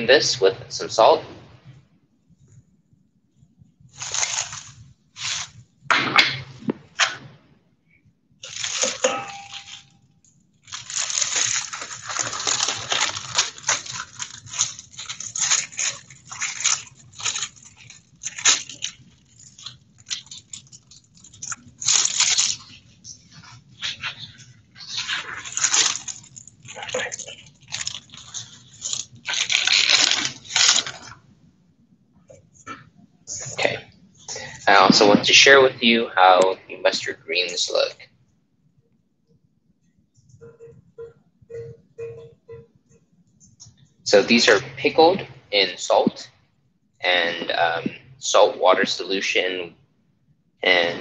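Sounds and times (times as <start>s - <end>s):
meat scrubbed with salt: 3.9s - 5.6s, 10.6s - 31.1s
plastic wrap crinkling and tearing: 3.9s - 5.7s, 8.4s - 31.3s.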